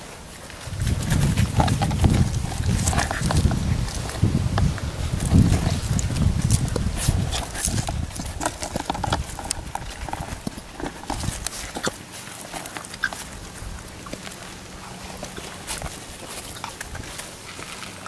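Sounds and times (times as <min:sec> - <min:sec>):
wind rumble on microphone: 0:00.0 - 0:11.9
puppies scampering on dirt: 0:00.0 - 0:18.0.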